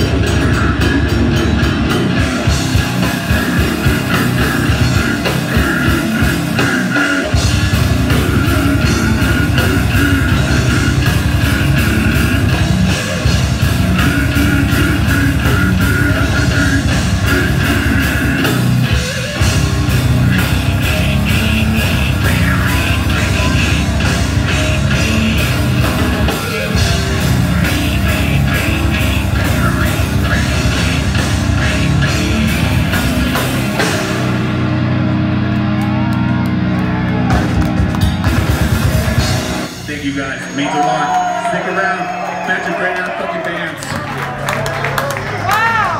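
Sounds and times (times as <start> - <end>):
fast drum kit: 0.0 - 34.9, 37.1 - 41.3
metal vocals: 0.0 - 35.2
distorted electric guitar: 0.0 - 41.7
bass guitar: 0.0 - 42.2, 43.7 - 45.9.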